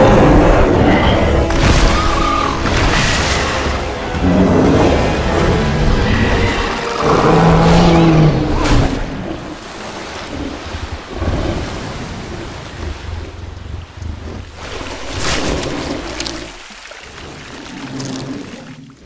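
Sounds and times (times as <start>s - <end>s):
deep creature growl: 0.0s - 9.3s
heavy water splashing: 0.0s - 19.0s.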